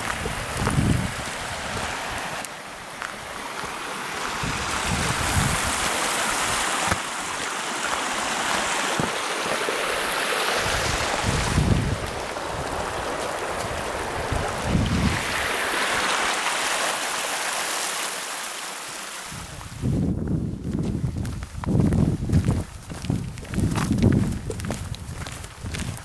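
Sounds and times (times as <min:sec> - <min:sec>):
mountain stream rushing: 0:00.0 - 0:19.8.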